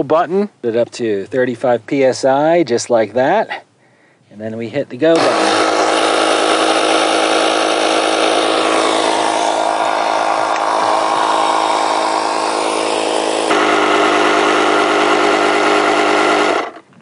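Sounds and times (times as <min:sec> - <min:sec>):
tire inflator compressor running: 0:05.2 - 0:16.9.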